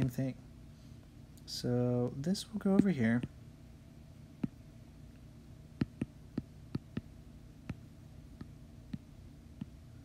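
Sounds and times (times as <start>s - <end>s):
faint low hum: 0.0s - 10.0s
stylus tapping on glass screen: 5.8s - 7.1s.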